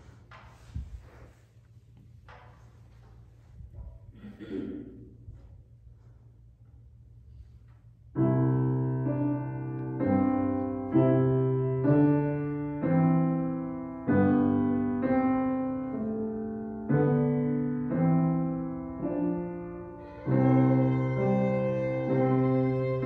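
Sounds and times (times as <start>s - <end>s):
slow piano chords: 8.1s - 23.0s.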